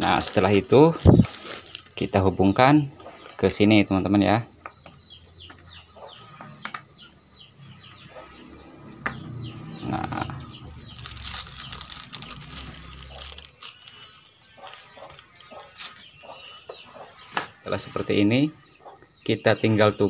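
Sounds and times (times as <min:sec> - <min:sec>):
plastic rustling and crinkling: 0:00.0 - 0:02.2, 0:10.5 - 0:17.6
bird chirping: 0:00.0 - 0:20.0.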